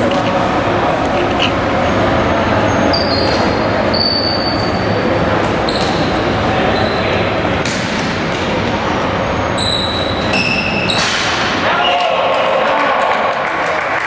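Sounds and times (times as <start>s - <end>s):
players' voices: 0.0s - 14.0s
shoes squeaking on floor: 2.6s - 7.2s, 8.6s - 11.2s.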